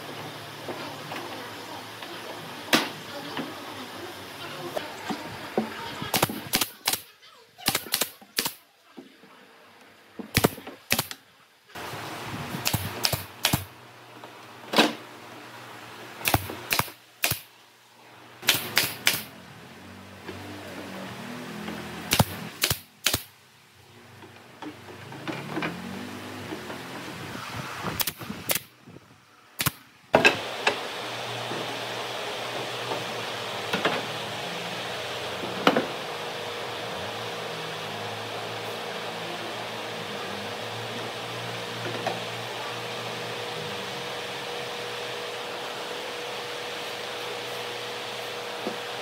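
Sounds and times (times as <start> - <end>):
nail gun firing: 6.1 - 8.6, 10.3 - 11.2, 12.6 - 13.7, 16.2 - 17.5, 18.4 - 19.3, 22.1 - 23.3, 28.0 - 28.7, 29.6 - 29.8.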